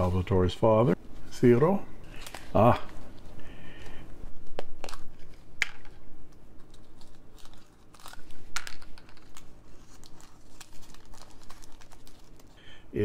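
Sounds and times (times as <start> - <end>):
tissue paper crinkling: 6.6 - 12.6.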